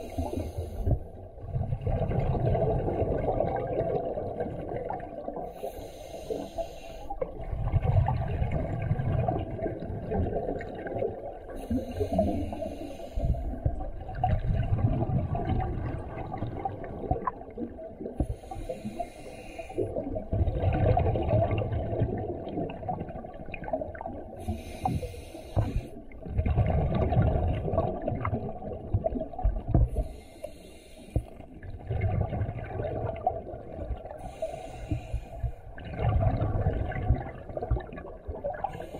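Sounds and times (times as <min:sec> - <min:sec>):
exhaled air bubbling: 0:00.0 - 0:38.9
regulator breathing hiss: 0:05.6 - 0:07.2, 0:11.7 - 0:13.6, 0:18.2 - 0:19.9, 0:24.4 - 0:26.0, 0:30.0 - 0:31.4, 0:34.2 - 0:35.6.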